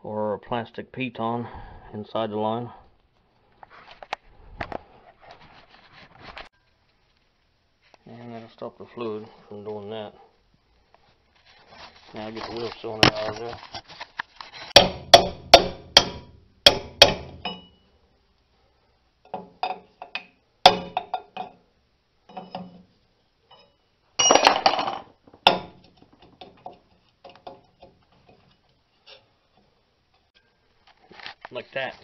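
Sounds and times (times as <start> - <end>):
metal tools clinking: 23.5 - 25.0.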